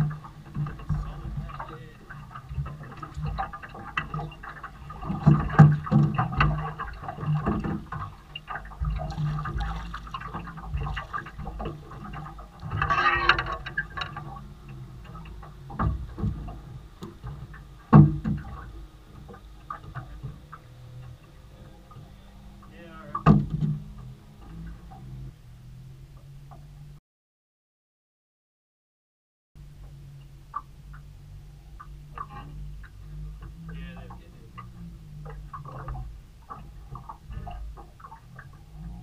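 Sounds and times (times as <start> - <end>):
water splashing and dripping: 0.0 - 25.3, 29.8 - 39.0
knocks and thumps on boat: 0.0 - 25.4, 29.8 - 39.0
low steady hum: 0.0 - 27.0, 29.6 - 39.0.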